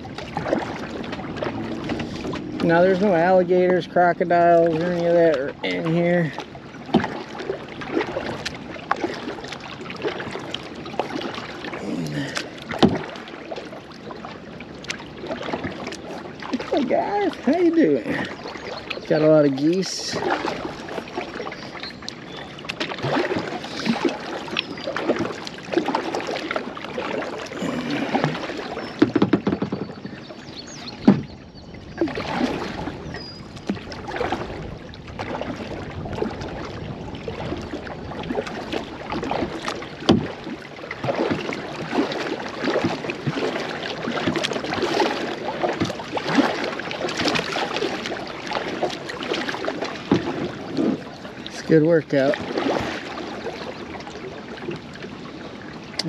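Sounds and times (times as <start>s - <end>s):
kayak paddle splashing water: 0.0s - 56.0s
sharp knocks: 29.0s - 30.0s.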